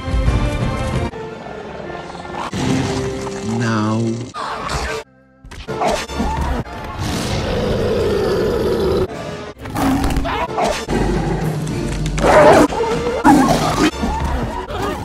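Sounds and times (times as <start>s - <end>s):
music: 0.0s - 15.0s
animal growls and snarls: 7.0s - 9.1s, 9.7s - 14.0s
lion roaring: 7.0s - 9.1s.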